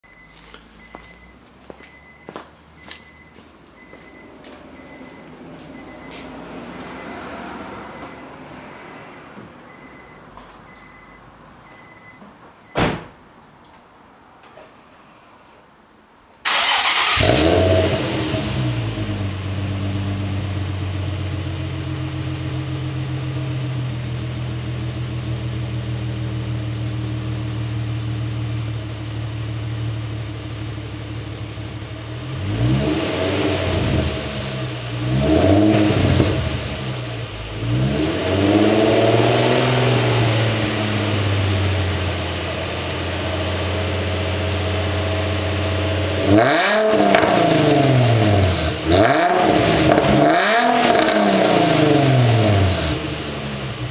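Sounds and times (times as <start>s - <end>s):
car engine idling and revving: 0.1s - 12.2s, 16.5s - 53.9s
sharp thump: 12.8s - 13.2s.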